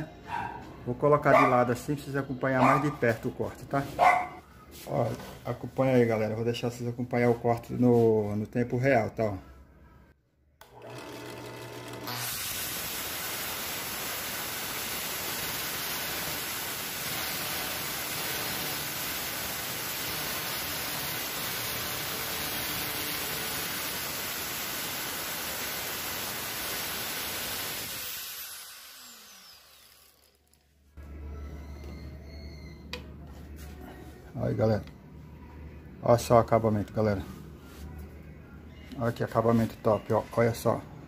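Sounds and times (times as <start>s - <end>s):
drill press hum: 10.6s - 12.8s, 14.4s - 30.6s
angle grinder cutting steel: 10.7s - 30.6s.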